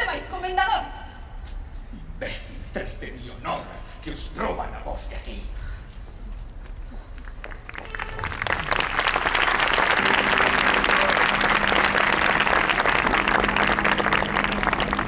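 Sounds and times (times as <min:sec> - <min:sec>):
audience applauding: 0:07.3 - 0:15.0
steady low tones: 0:08.0 - 0:15.0.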